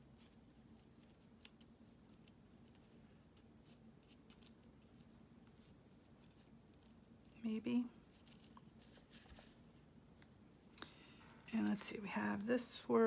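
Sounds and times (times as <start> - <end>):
fingers rustling paper and yarn: 0.0 - 10.7, 11.5 - 13.0
low steady hum: 0.0 - 13.0.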